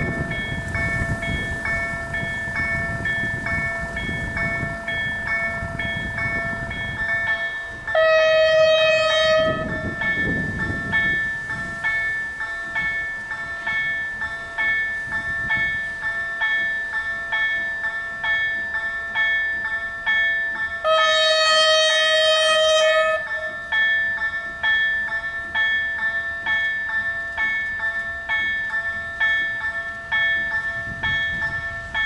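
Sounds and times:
level crossing warning bells: 0:00.0 - 0:32.0
train horn: 0:07.9 - 0:10.0, 0:20.8 - 0:23.6.

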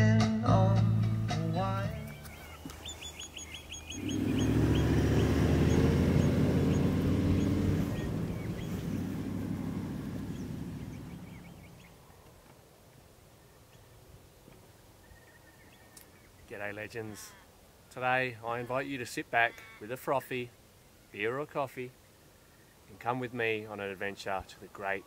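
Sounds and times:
vehicle engine drone: 0:01.0 - 0:12.0
bird chirping rapidly: 0:01.6 - 0:12.0.

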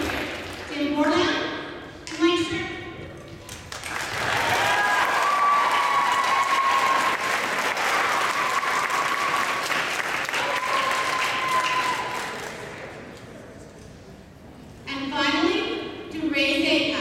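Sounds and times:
audience applauding: 0:03.5 - 0:13.2
crowd cheering: 0:03.8 - 0:13.2.

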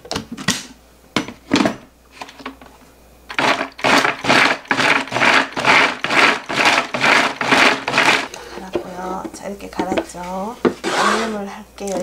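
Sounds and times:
food chopper whirring in pulses: 0:03.3 - 0:08.4.

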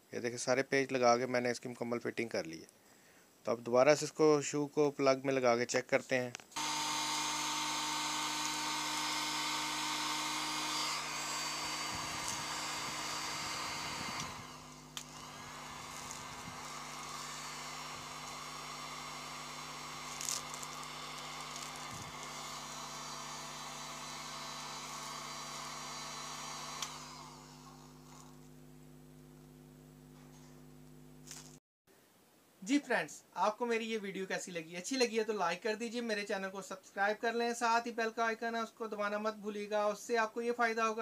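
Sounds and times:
heat gun blowing air: 0:06.6 - 0:28.9
heat gun switch click: 0:26.7 - 0:27.0.

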